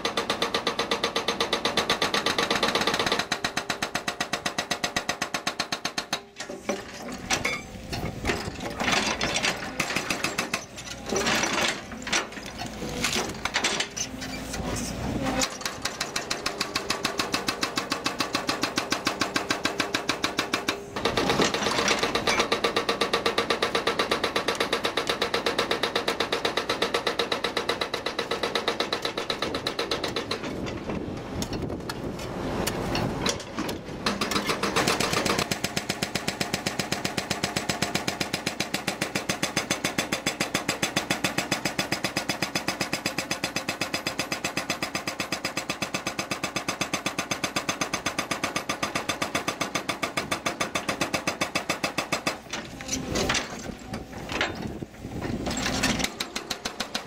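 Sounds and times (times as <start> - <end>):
hydraulic rock breaker hammering: 0.0 - 57.0.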